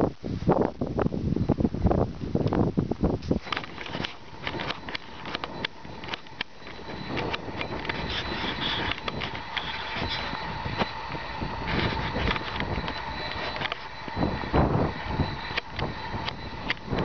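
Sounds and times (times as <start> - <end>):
camera zoom motor whine: 3.2 - 17.0
camera handling clicks and rustling: 3.3 - 10.2.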